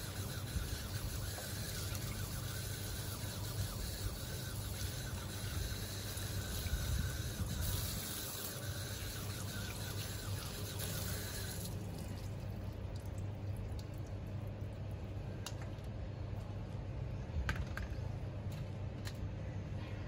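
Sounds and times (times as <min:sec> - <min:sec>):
water running from a tap: 0:00.0 - 0:13.1
low steady hum: 0:00.0 - 0:20.0.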